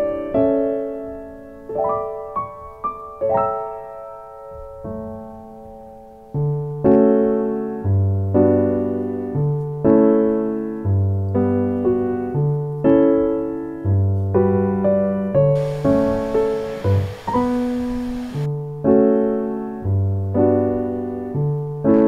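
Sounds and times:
gentle piano music: 0.0 - 22.0
soft hiss: 15.6 - 18.5.

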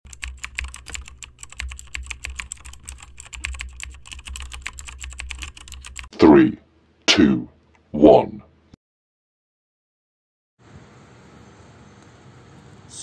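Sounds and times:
keyboard typing clicks: 0.1 - 6.1.

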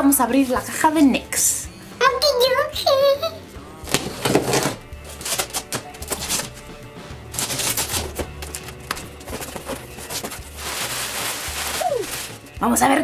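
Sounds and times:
background music: 0.0 - 13.0
blade slitting packing tape: 3.9 - 6.6, 7.3 - 12.5
cardboard flaps clicking and rustling: 3.9 - 6.6, 7.3 - 12.4.

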